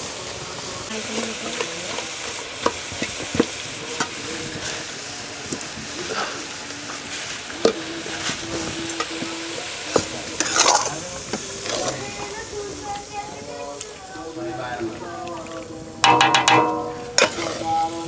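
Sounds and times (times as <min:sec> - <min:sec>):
food sizzling in a pot: 0:00.0 - 0:18.0
ladle knocking and scraping pot: 0:16.0 - 0:17.5.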